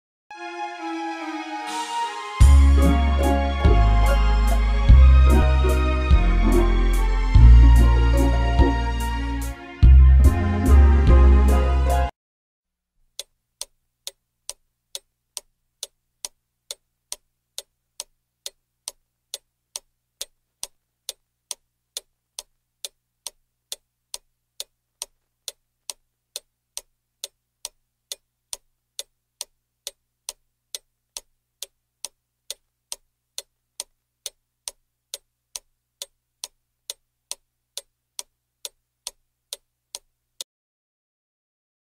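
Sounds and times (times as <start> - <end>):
clock ticking: 13.1 - 40.5.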